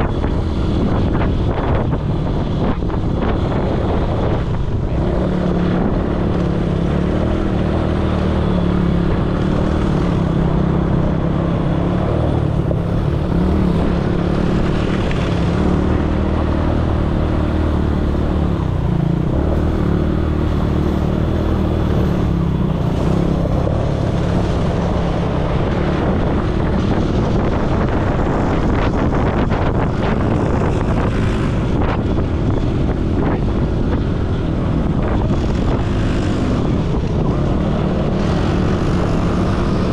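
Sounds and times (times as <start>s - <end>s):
atv engine running: 0.0s - 39.9s
wind noise on microphone: 0.0s - 39.9s.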